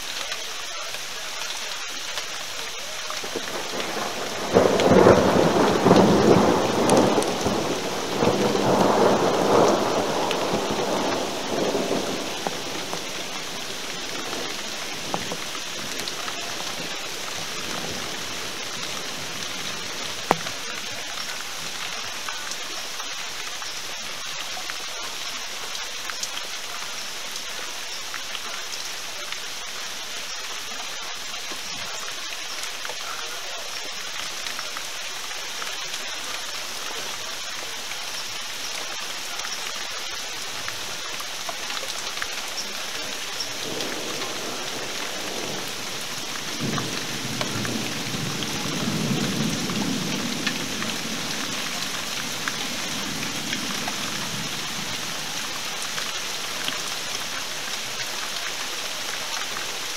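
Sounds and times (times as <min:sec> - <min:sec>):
steady rain hiss: 0:00.0 - 0:59.9
thunder rumble: 0:03.2 - 0:21.8, 0:42.5 - 0:56.0.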